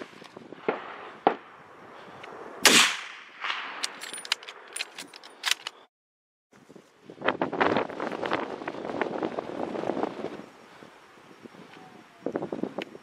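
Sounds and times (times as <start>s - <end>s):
gunshots: 2.6s - 3.8s.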